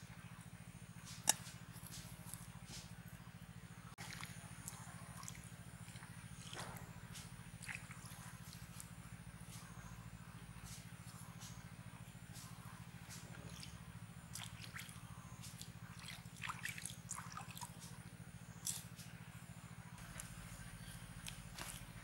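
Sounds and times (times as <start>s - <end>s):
hand squishing wet bait: 4.0s - 9.6s, 13.0s - 19.1s, 20.0s - 22.0s.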